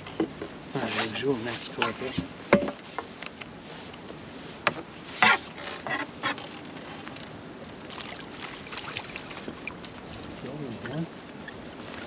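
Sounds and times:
steady background hiss: 0.0 - 12.0
fish splashing in water: 7.8 - 12.0.

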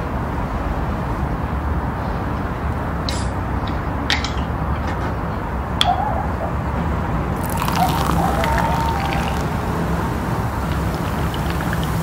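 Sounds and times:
soda poured over ice fizzing: 7.4 - 12.0.

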